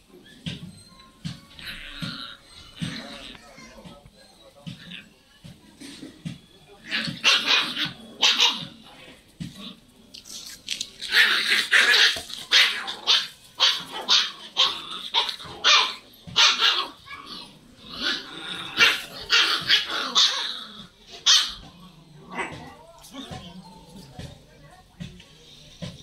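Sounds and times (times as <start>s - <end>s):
puppies barking and yipping: 0.1s - 3.6s, 6.8s - 23.7s.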